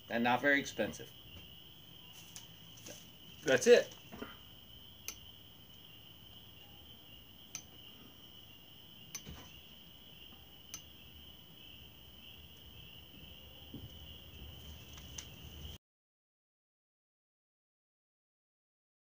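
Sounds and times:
lamp switch clicks: 5.0s - 5.3s, 7.5s - 7.7s.

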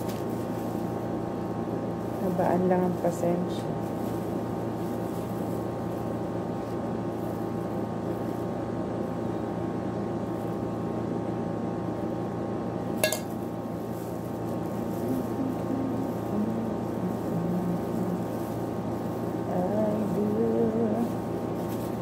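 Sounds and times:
steady machine hum: 0.0s - 22.0s
kitchen utensil clink: 13.0s - 13.4s.

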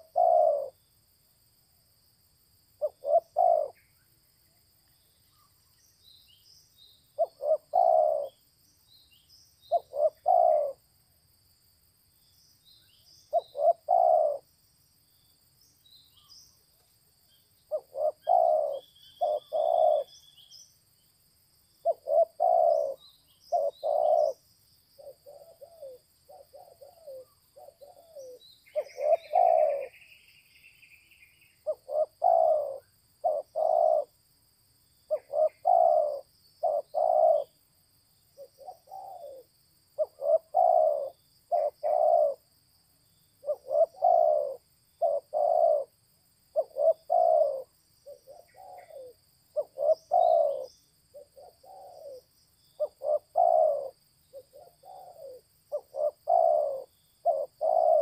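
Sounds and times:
dove cooing: 0.0s - 0.8s, 2.8s - 3.8s, 7.2s - 8.4s, 9.7s - 10.8s, 13.3s - 14.5s, 17.7s - 20.2s, 21.8s - 24.4s, 25.0s - 30.0s, 31.6s - 34.1s, 35.1s - 37.6s, 38.4s - 42.5s, 43.4s - 45.9s, 46.5s - 58.0s.

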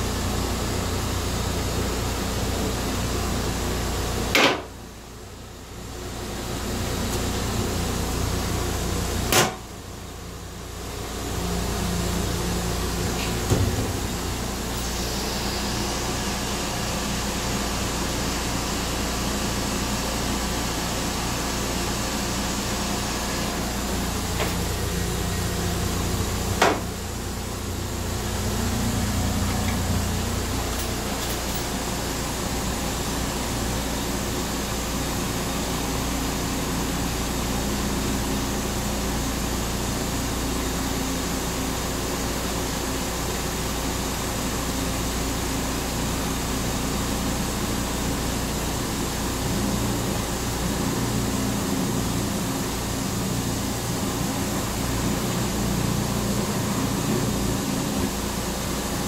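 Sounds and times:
train coach hum and rush: 10.8s - 18.3s, 21.2s - 36.0s.

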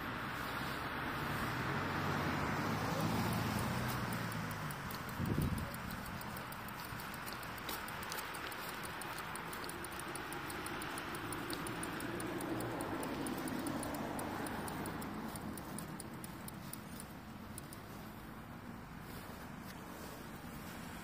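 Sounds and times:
bicycle rolling: 2.4s - 21.0s
bicycle freewheel ticking: 2.8s - 18.4s
wind noise: 5.1s - 5.8s.

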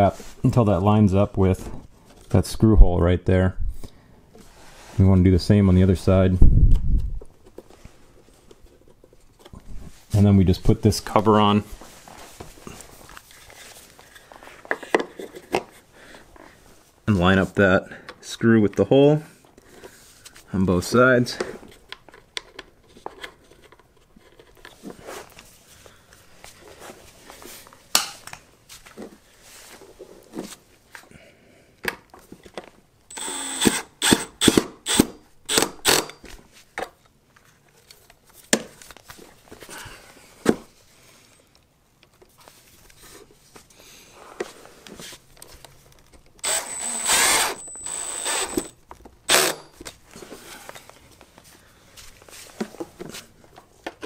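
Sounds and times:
cordless drill driving screws: 33.1s - 36.2s, 46.4s - 49.8s.

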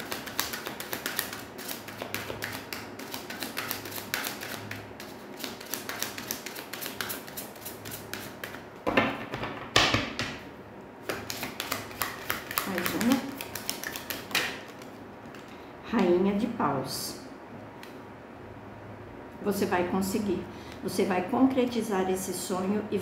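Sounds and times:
cards being shuffled: 0.0s - 8.6s, 11.0s - 15.4s.

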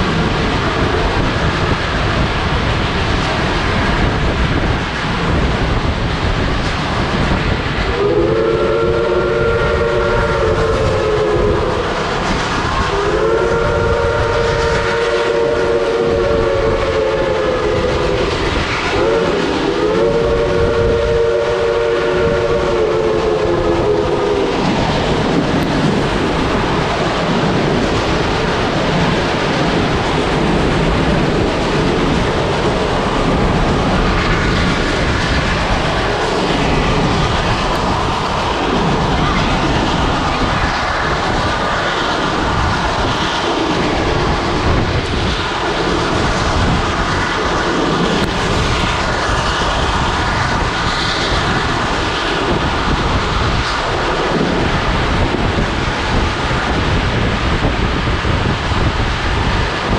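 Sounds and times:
train cars rumbling on rails: 0.0s - 59.9s
steam locomotive chime whistle: 7.9s - 11.9s, 12.8s - 18.2s, 18.9s - 24.5s.

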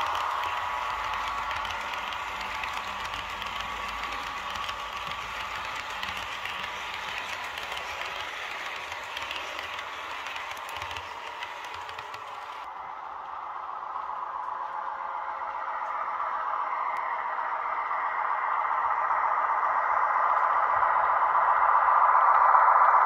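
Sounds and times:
model train wheels clattering on track: 0.0s - 12.7s.

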